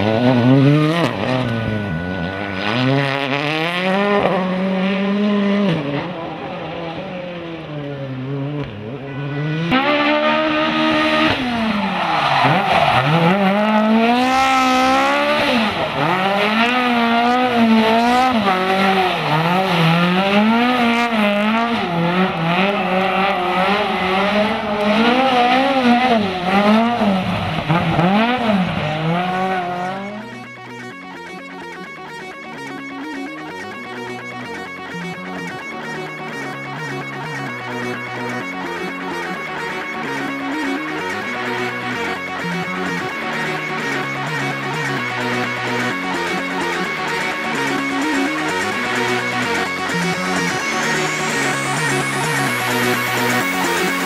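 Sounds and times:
rally car engines revving: 0.0 - 54.0.

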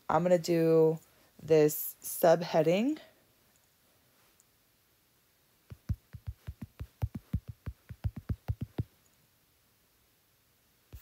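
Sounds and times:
taps on touchscreen keyboard: 5.7 - 8.9.

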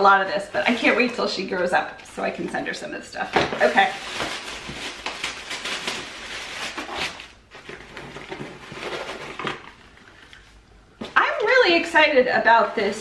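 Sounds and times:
tissue paper rustling and crinkling: 3.6 - 10.3.

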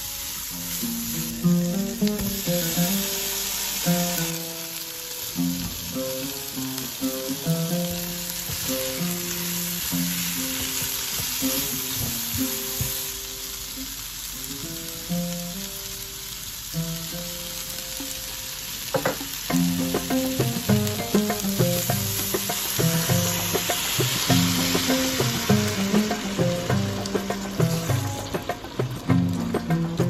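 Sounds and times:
food sizzling in a frying pan: 0.0 - 30.0
plucked-string melody: 0.0 - 30.0.

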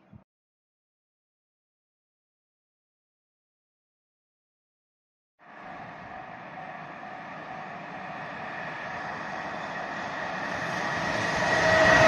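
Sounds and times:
freight train running: 5.4 - 12.0.

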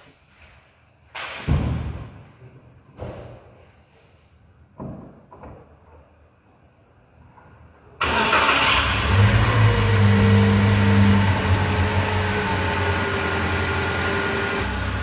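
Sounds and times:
car engine starting and idling: 8.0 - 15.0.

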